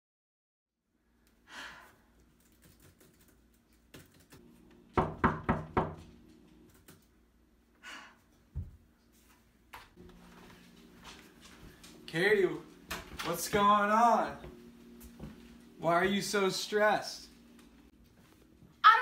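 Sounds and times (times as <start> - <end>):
laptop keyboard typing: 2.4 - 4.4
knocks on a door: 5.0 - 6.1.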